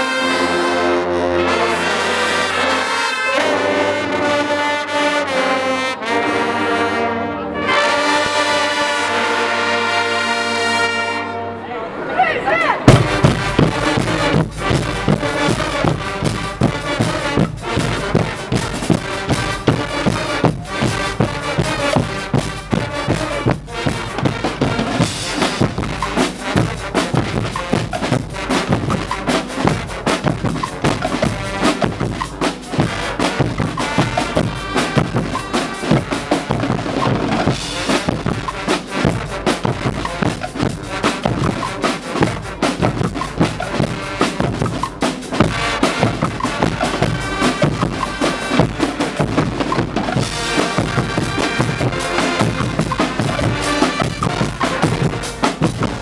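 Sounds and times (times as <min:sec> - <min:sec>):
brass section playing: 0:00.0 - 0:56.0
drums and cymbals: 0:12.8 - 0:56.0.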